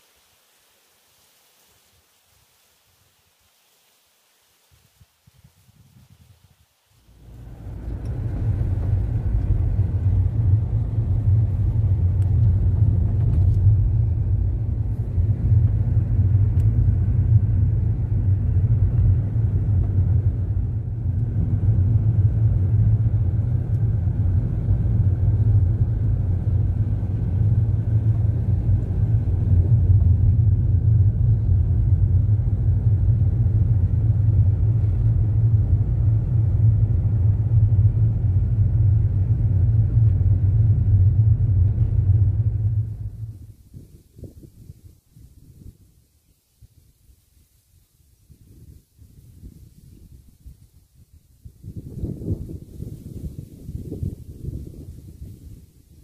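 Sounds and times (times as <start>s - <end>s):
car interior road rumble: 7.1s - 45.6s.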